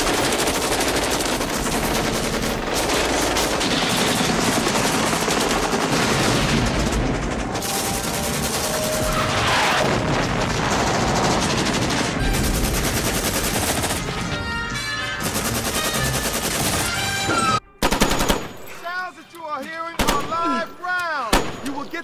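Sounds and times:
rapid automatic gunfire: 0.0s - 14.2s, 15.2s - 17.2s, 17.8s - 18.6s, 20.0s - 20.4s.

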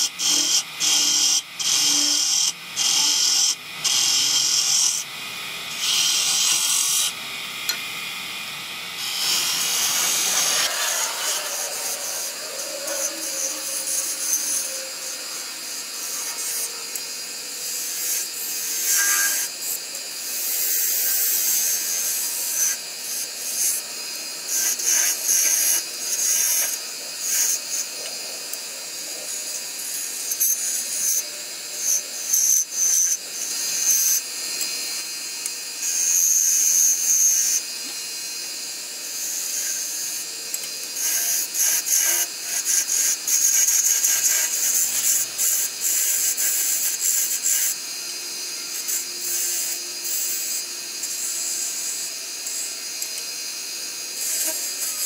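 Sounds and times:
turning tool scraping spinning wood: 9.0s - 14.9s.

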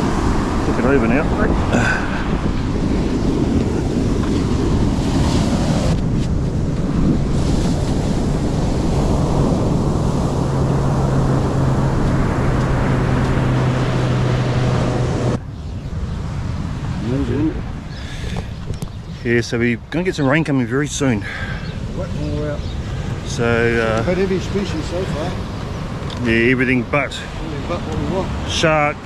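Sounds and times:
surf breaking on beach: 0.0s - 19.4s
wind buffeting microphone: 0.0s - 29.0s.

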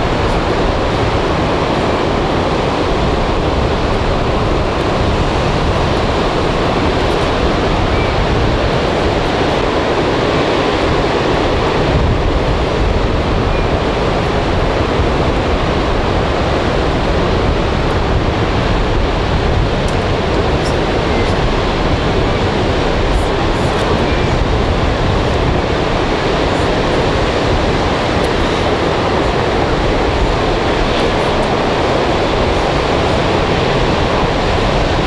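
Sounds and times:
waves breaking on beach: 0.0s - 35.0s.

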